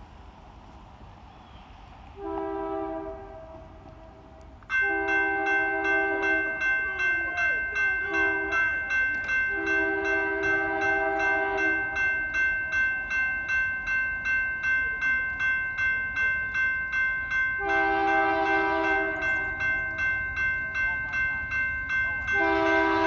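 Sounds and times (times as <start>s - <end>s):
locomotive air horn: 2.2s - 4.2s, 4.8s - 6.7s, 8.1s - 8.6s, 9.5s - 11.9s, 17.6s - 19.2s, 22.3s - 23.0s
crossing bell ringing: 4.1s - 23.0s.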